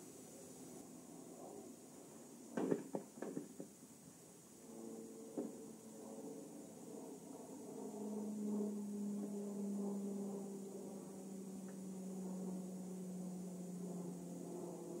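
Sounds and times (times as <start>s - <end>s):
low hum: 4.2s - 15.0s.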